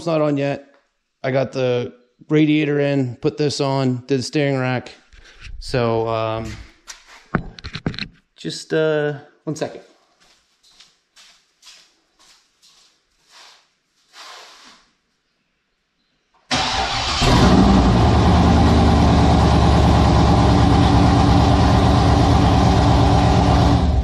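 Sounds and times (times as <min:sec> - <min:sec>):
car engine starting and idling: 0:16.5 - 0:24.0.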